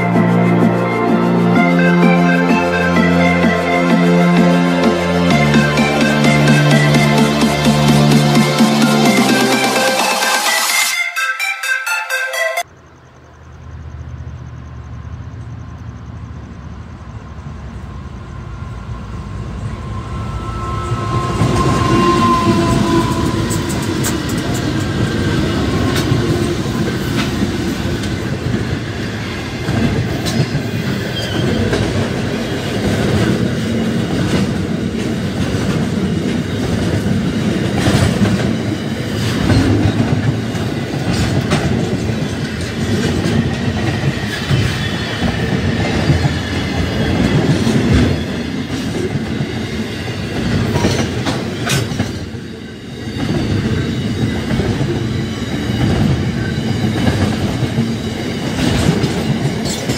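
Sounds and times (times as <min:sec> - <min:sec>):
train wheels clattering over rail joints: 0:22.5 - 0:52.5, 0:53.2 - 0:59.9.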